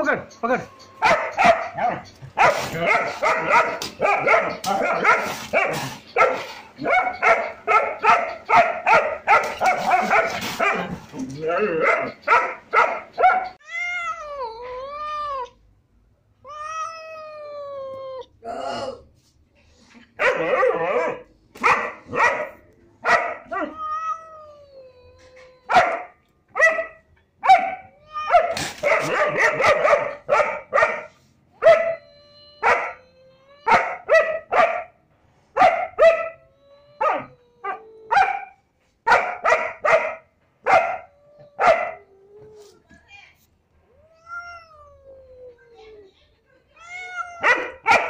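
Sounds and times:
dog barking: 0:01.0 - 0:11.0, 0:11.8 - 0:13.6, 0:20.2 - 0:23.8, 0:25.7 - 0:32.0, 0:32.6 - 0:33.0, 0:33.7 - 0:35.0, 0:35.6 - 0:36.4, 0:38.1 - 0:42.0, 0:47.4 - 0:48.0.

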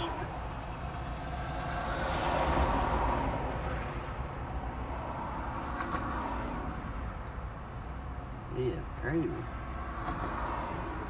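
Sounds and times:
vehicle passing: 0:00.0 - 0:07.1.

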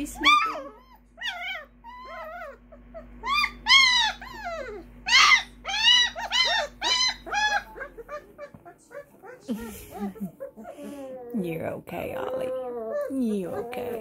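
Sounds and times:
puppy whining and squealing: 0:00.0 - 0:11.4, 0:12.2 - 0:14.0.

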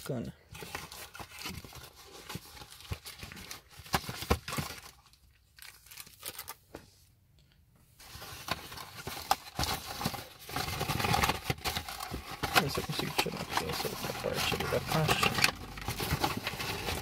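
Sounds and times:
plastic wrapping crinkling: 0:00.6 - 0:06.6, 0:08.0 - 0:17.0
cardboard scraping and clicking: 0:09.2 - 0:17.0.

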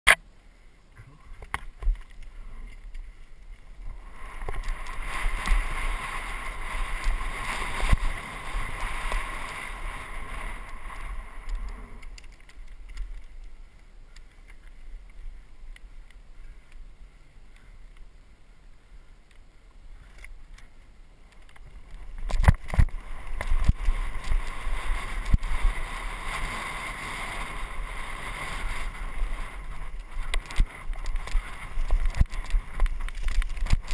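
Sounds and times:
bike tyres on dirt: 0:00.4 - 0:33.9
wind rumble on microphone: 0:01.2 - 0:16.7, 0:21.3 - 0:33.9
bike rattles and knocks: 0:29.8 - 0:33.9.

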